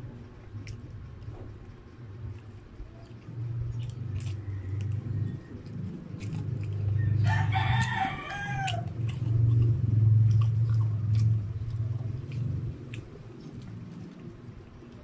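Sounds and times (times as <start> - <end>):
loud low hum: 0.0 - 14.7
rooster crowing: 6.9 - 9.2.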